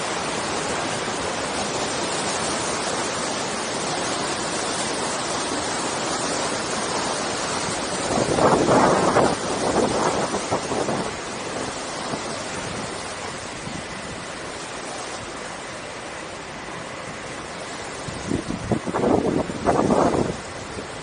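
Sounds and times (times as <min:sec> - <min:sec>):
water rushing: 0:00.0 - 0:21.0
wind buffeting microphone: 0:04.7 - 0:15.1, 0:16.9 - 0:21.0.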